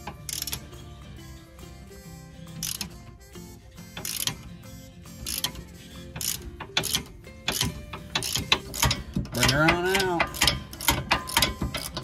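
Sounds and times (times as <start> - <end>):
socket ratchet clicking: 0.0 - 0.8, 2.6 - 3.0, 3.9 - 4.5, 5.2 - 12.0.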